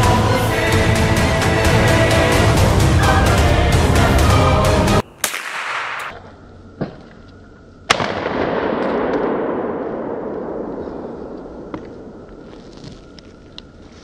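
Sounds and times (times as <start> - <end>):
gunshots with echo: 5.0 - 6.2, 7.9 - 12.5.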